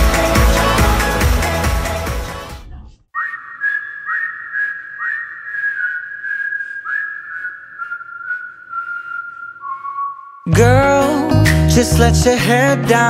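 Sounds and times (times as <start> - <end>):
whistled melody: 3.2 - 11.4.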